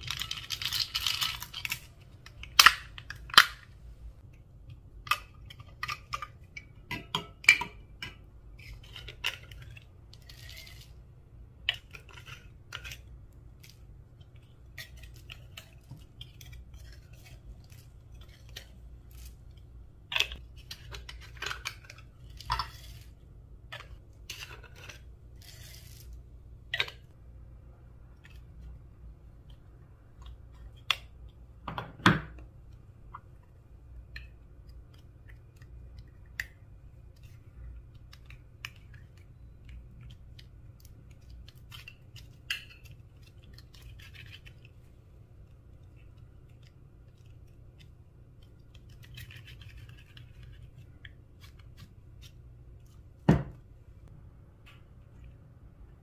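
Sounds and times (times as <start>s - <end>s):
small clicks and scraping: 45.4s - 53.0s.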